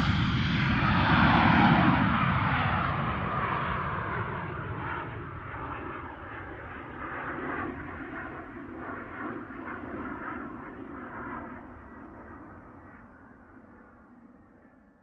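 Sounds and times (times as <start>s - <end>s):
jet aircraft rushing: 0.0s - 10.1s.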